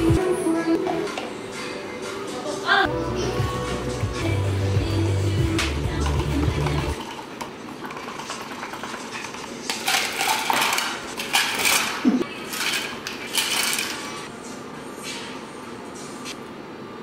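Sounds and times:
ice cubes clinking into cups: 0:06.7 - 0:14.2.

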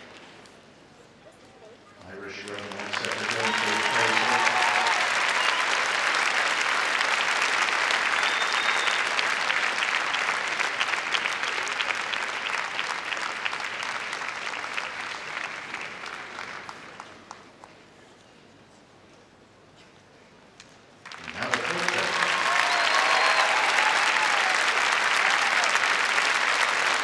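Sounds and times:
crowd applauding: 0:02.1 - 0:17.6, 0:21.0 - 0:27.0.

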